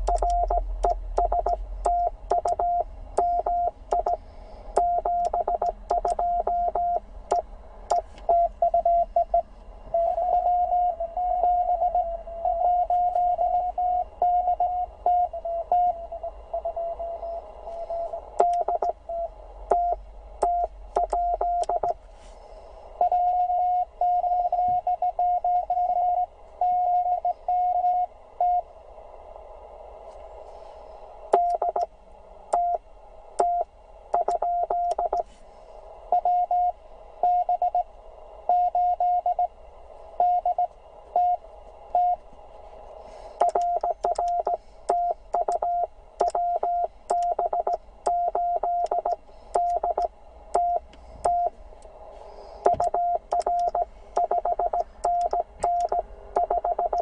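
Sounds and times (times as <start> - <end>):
morse code tone: 0.0 - 4.2, 4.8 - 22.0, 43.4 - 51.5, 52.7 - 57.0
sharp clicks: 0.0 - 4.2, 4.8 - 6.2, 43.4 - 46.4, 47.1 - 51.4, 52.6 - 57.0.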